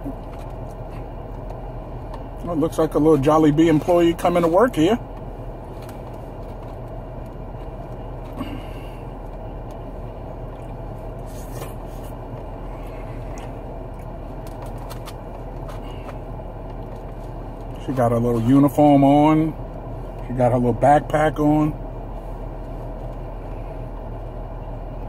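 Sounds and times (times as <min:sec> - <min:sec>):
car engine idling hum: 0:00.0 - 0:25.0
faint clicks and rustles: 0:03.6 - 0:18.1.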